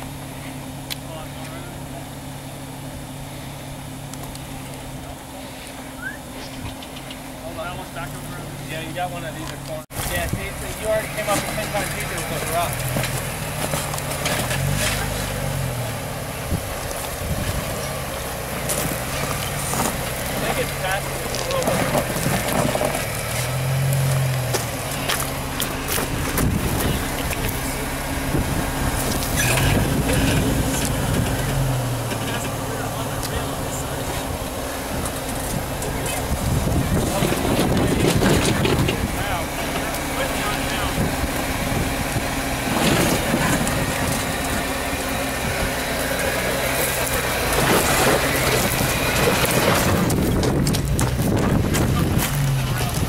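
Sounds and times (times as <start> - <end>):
engine running at low revs: 0.0 - 53.0
tyres scraping and crunching on rock: 9.4 - 15.8, 16.8 - 40.5, 42.6 - 53.0
knocks and crunches on rock: 47.5 - 53.0.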